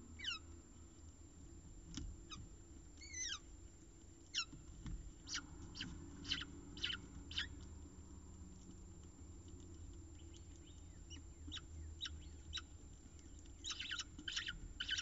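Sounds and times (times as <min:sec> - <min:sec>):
falcon chicks begging calls: 0:05.3 - 0:07.6, 0:13.6 - 0:15.0.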